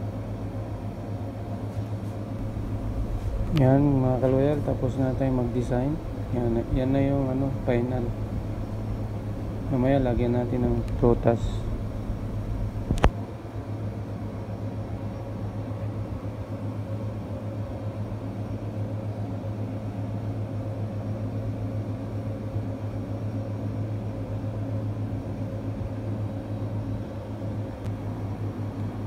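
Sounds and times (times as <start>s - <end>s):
machinery humming: 0.0s - 29.0s
sharp click: 12.9s - 13.2s.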